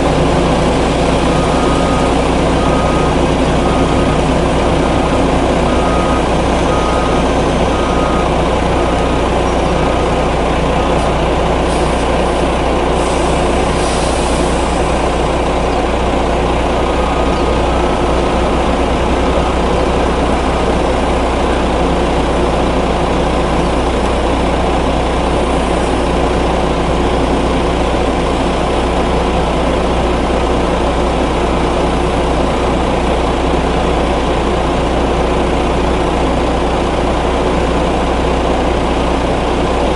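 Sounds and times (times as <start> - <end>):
truck diesel engine running: 0.0 - 39.9
warning beeps: 1.2 - 10.2, 16.8 - 18.5.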